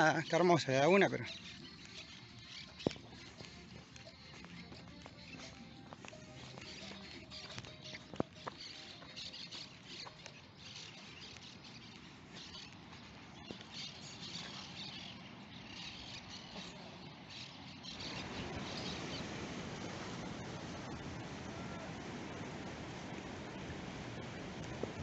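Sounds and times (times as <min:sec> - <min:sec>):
birds chirping: 0:00.0 - 0:25.0
water churning and foaming: 0:18.0 - 0:25.0.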